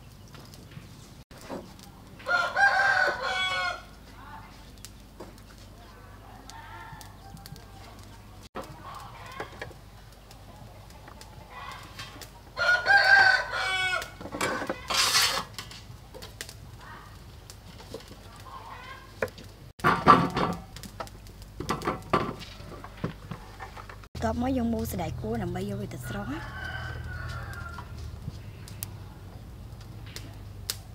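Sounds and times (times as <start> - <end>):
rooster crowing: 2.2 - 4.0, 6.2 - 8.0, 12.5 - 14.2, 22.4 - 23.1, 25.9 - 28.2.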